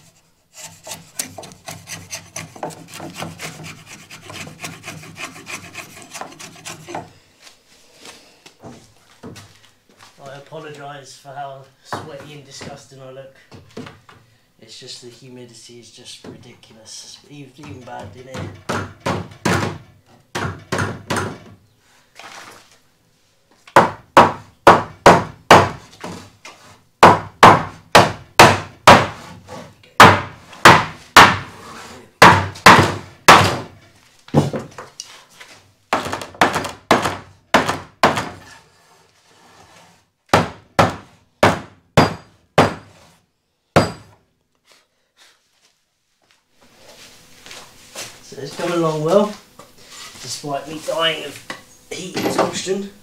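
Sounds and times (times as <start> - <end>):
hammer knocking on wooden block: 23.8 - 25.8, 27.0 - 29.2, 30.0 - 31.5, 32.2 - 33.6, 36.0 - 38.4, 40.3 - 42.9.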